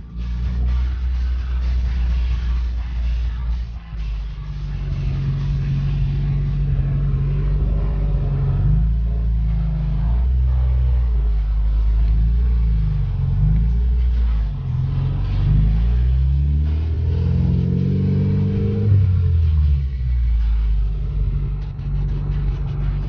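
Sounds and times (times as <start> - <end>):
car engine accelerating: 0.0 - 23.0.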